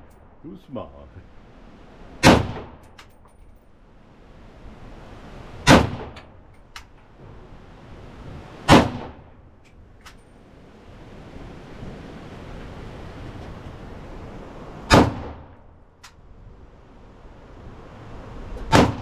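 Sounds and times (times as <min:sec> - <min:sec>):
rifle shots with echo: 0:02.2 - 0:02.9, 0:05.6 - 0:06.4, 0:08.7 - 0:09.4, 0:14.9 - 0:15.6, 0:18.7 - 0:19.0.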